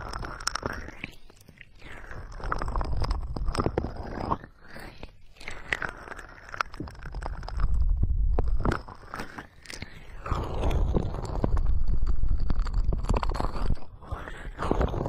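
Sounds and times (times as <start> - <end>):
fingers rubbing microphone: 0.0 - 15.0
deep rumble: 6.7 - 9.2, 10.0 - 15.0.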